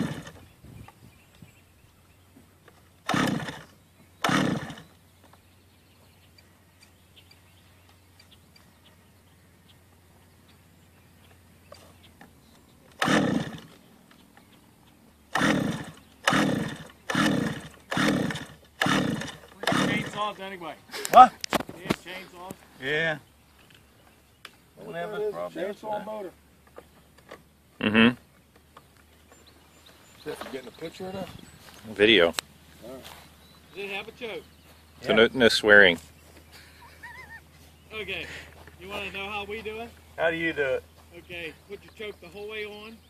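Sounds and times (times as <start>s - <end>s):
recoil starter pulls on small engine: 0.0s - 0.5s, 3.0s - 4.9s, 12.9s - 13.8s, 15.3s - 20.3s.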